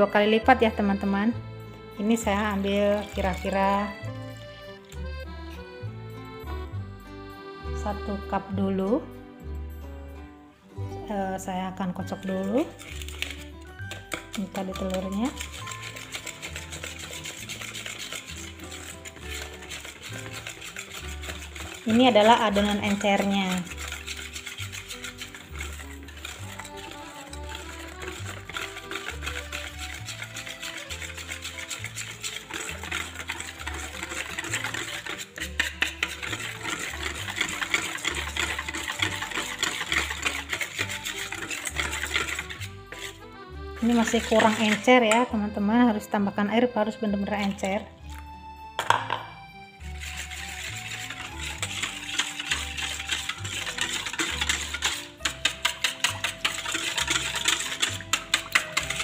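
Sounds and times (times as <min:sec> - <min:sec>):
batter whisked in a bowl: 0:00.0 - 0:09.1, 0:11.0 - 0:48.3, 0:49.7 - 0:59.0
background music with bass: 0:00.6 - 0:13.7, 0:41.8 - 0:52.0.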